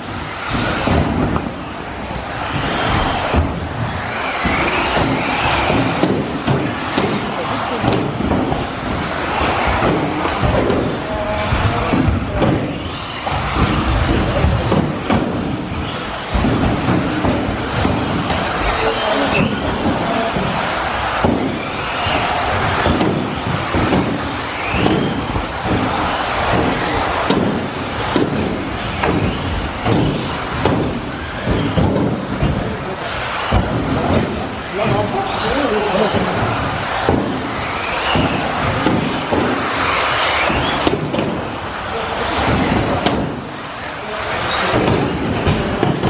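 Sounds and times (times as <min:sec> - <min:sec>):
rising motor whines: 0:00.0 - 0:45.5
rc car motors and tyres: 0:00.0 - 0:46.0.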